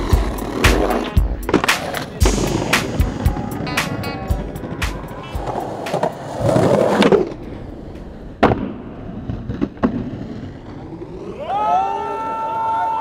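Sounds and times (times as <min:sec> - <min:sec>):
skateboard scraping: 0:00.0 - 0:11.4
skateboard wheels rolling: 0:00.0 - 0:13.0
skateboard snap or landing clap: 0:00.6 - 0:04.1.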